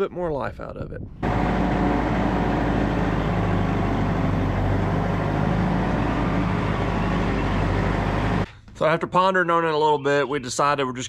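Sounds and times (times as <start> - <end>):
tractor engine running: 1.2 - 8.5.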